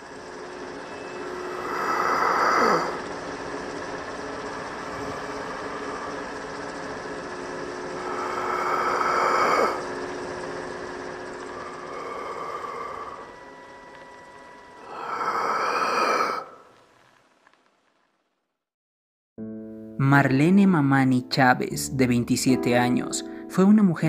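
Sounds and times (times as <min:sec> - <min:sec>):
film projector whirring: 0:00.0 - 0:18.1.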